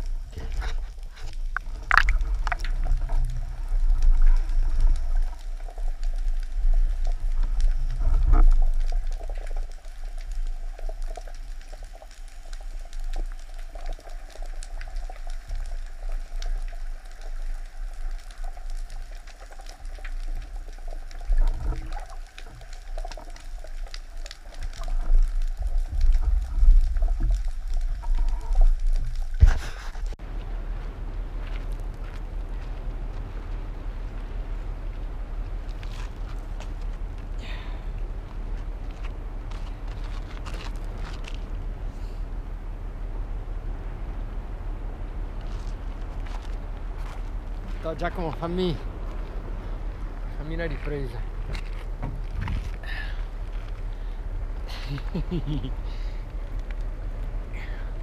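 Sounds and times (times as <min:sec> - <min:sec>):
underwater water rumble: 0:00.0 - 0:58.0.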